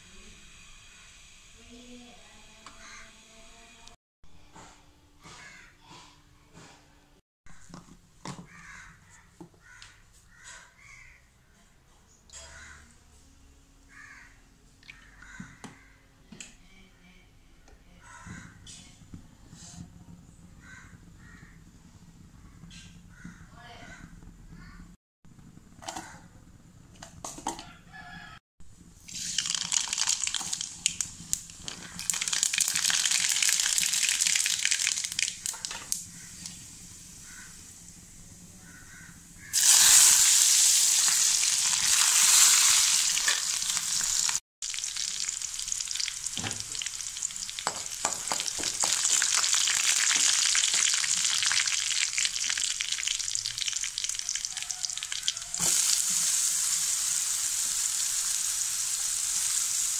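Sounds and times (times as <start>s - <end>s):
hot oil sizzling and crackling: 28.9s - 38.5s, 39.2s - 59.9s.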